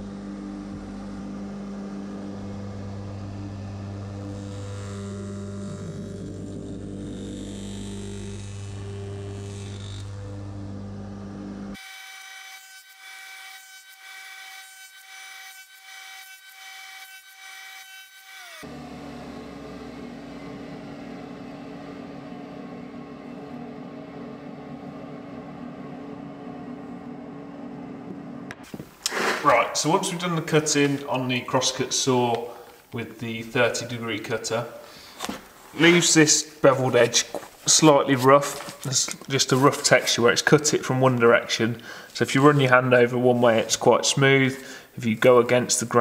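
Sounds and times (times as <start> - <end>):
steady tones: 0.0 - 11.8, 18.6 - 46.0
crosscut saw cutting wood: 0.1 - 10.6, 11.7 - 25.3, 29.0 - 31.2.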